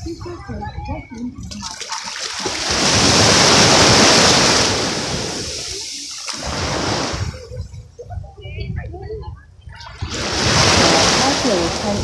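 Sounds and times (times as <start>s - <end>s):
wave washing up sand: 1.6s - 7.6s, 10.0s - 12.0s.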